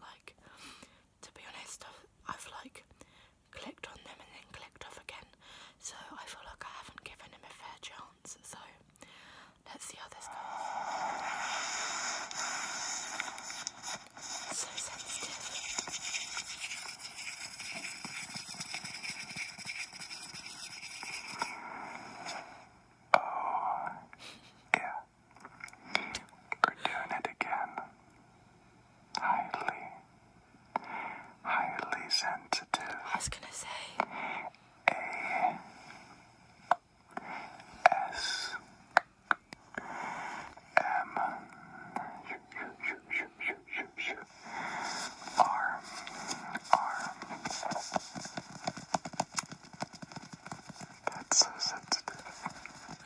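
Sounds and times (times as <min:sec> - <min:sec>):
breathy whisper-like noise: 0:00.0 - 0:28.2, 0:29.0 - 0:53.0
wet mouth clicks: 0:10.6 - 0:21.6
fingers rubbing and rustling: 0:10.7 - 0:22.5, 0:42.6 - 0:53.0.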